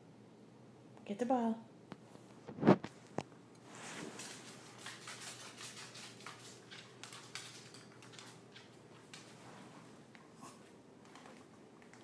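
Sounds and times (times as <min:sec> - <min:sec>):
dog claws clicking on wooden floor: 0:04.2 - 0:09.4.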